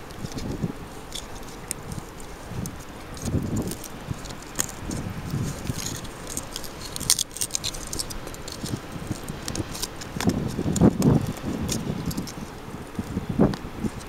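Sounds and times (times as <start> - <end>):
metal tool scraping rock: 0.3 - 10.8.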